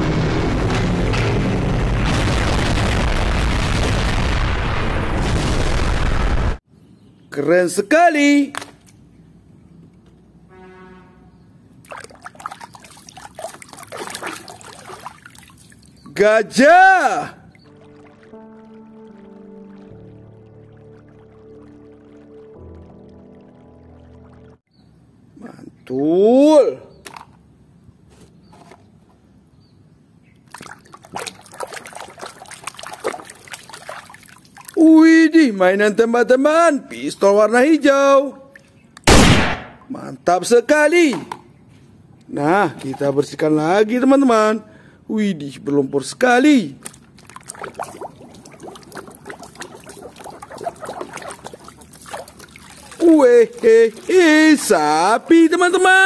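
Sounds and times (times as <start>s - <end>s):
water splashing in a basin: 11.8s - 24.6s, 30.5s - 34.8s, 46.8s - 56.0s.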